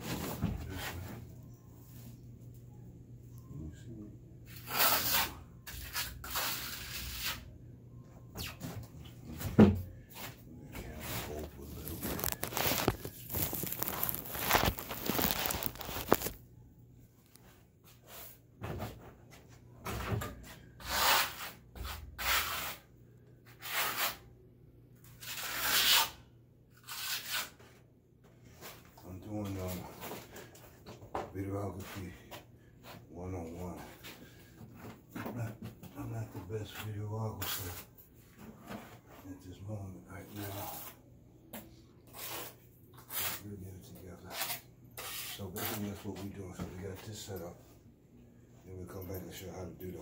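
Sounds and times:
trowel scraping cement on wall: 0:04.5 - 0:07.5, 0:20.8 - 0:24.3, 0:25.2 - 0:26.2, 0:26.8 - 0:27.7, 0:42.1 - 0:43.5, 0:44.2 - 0:46.1.

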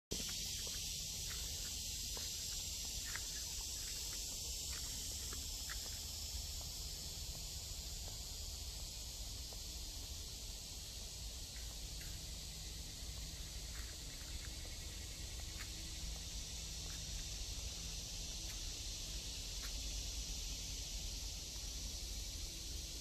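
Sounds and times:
high-pitched insect chorus: 0:00.1 - 0:23.0.

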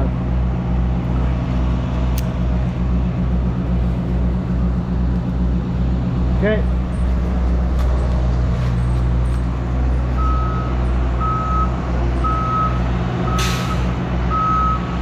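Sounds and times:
loader engine running: 0:00.0 - 0:15.0
reversing alarm beeping: 0:10.2 - 0:14.9.

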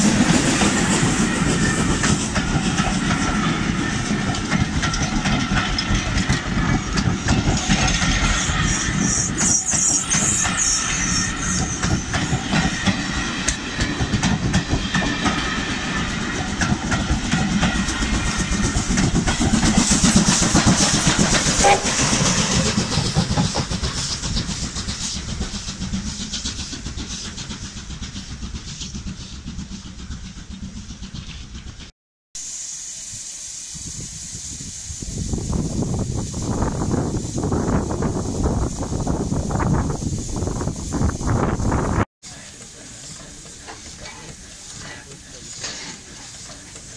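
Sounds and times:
steam hissing: 0:00.0 - 0:46.9
steam train rolling past: 0:00.0 - 0:46.9
wheels clattering over rail joints: 0:42.3 - 0:46.9.

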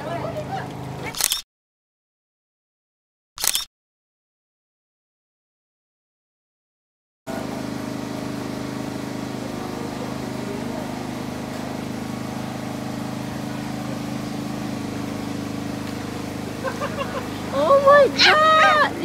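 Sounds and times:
engine droning steadily: 0:00.0 - 0:01.2, 0:07.3 - 0:19.0.

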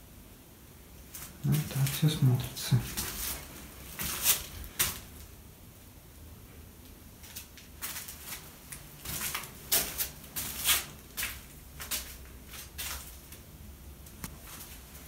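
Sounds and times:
scuffing footsteps on debris: 0:02.9 - 0:05.2, 0:07.4 - 0:13.3.

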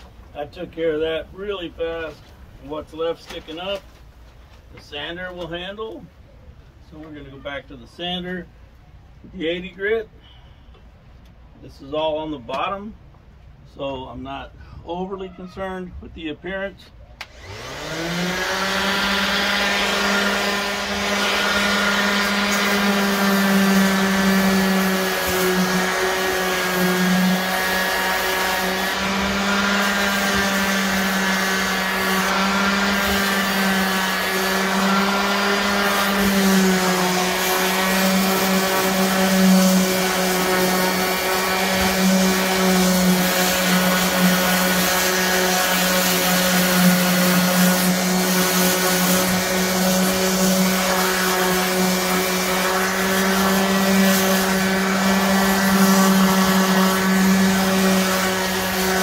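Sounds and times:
electric sander sanding wood: 0:17.2 - 0:59.0.

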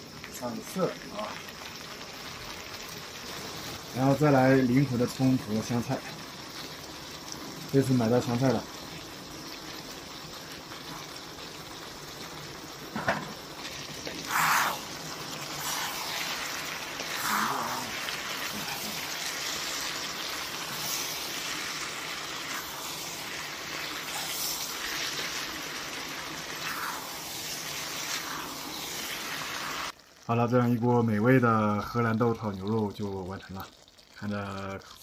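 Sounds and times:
food sizzling in a pan: 0:00.0 - 0:35.0.

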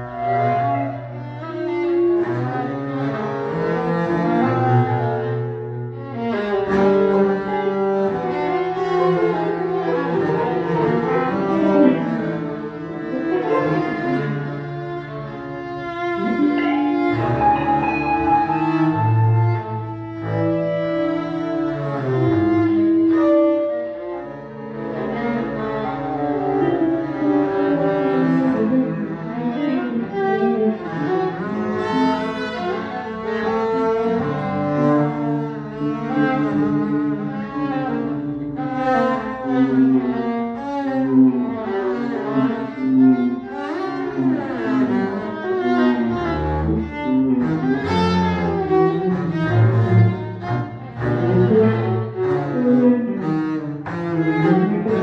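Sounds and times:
double bass: 0:00.0 - 0:55.0
viola: 0:00.0 - 0:55.0
guitar: 0:15.1 - 0:32.8.

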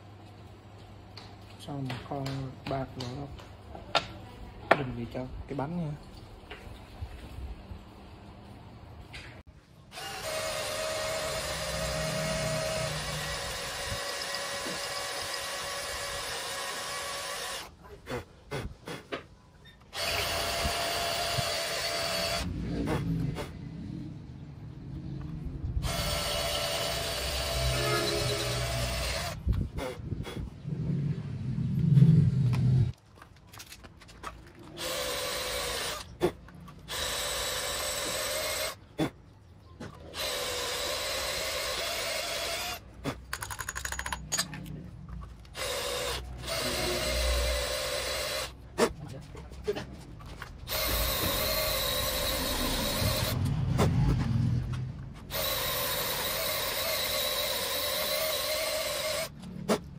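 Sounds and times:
electric drill running: 0:09.9 - 0:17.7, 0:19.9 - 0:22.5, 0:25.8 - 0:29.4, 0:34.8 - 0:36.0, 0:36.9 - 0:38.8, 0:40.2 - 0:42.8, 0:45.6 - 0:48.5, 0:50.7 - 0:53.4, 0:55.3 - 0:59.3.

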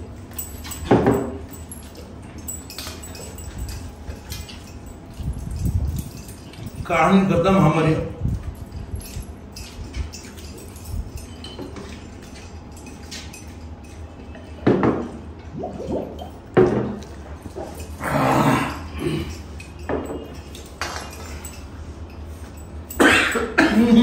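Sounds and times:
glass mugs clinking: 0:09.6 - 0:21.7
gulps and mouth sounds: 0:15.5 - 0:16.4.

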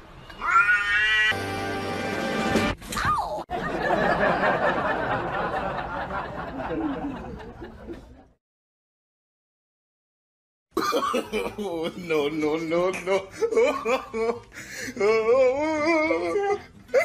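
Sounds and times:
people chuckling: 0:03.5 - 0:08.4.

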